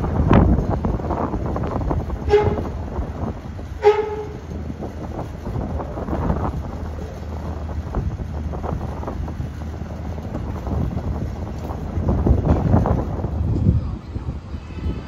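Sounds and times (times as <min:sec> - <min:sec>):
low engine rumble: 0:00.0 - 0:15.0
vehicle horn toots: 0:02.2 - 0:02.8, 0:03.8 - 0:04.5.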